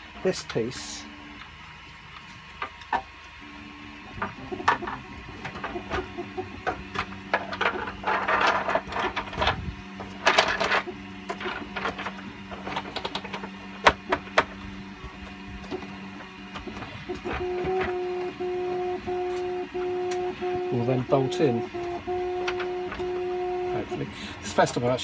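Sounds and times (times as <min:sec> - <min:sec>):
low hum: 0:03.4 - 0:24.6
plastic parts clicking and knocking: 0:04.2 - 0:09.6, 0:10.2 - 0:14.6, 0:21.7 - 0:23.2
plastic scraping on plastic: 0:04.2 - 0:14.6, 0:15.6 - 0:24.0.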